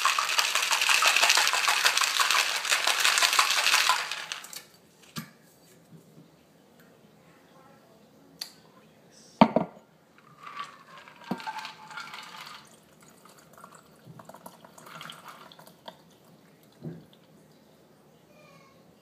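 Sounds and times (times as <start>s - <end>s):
glass knocking on wooden table: 9.4s - 9.8s
liquid pouring into glass: 10.4s - 17.2s.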